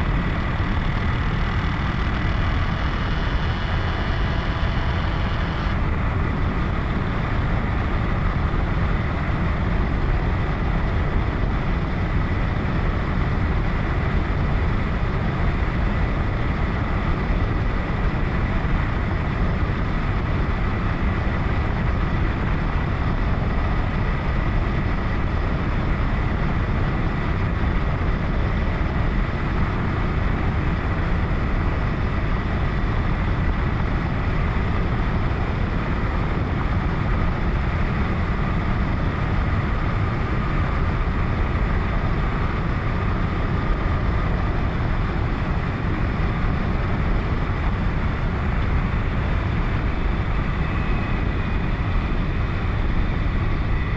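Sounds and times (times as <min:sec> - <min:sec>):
motorcycle engine droning: 0:00.0 - 0:06.0
faint steady whine: 0:00.0 - 0:53.9
wind rush: 0:00.0 - 0:53.9.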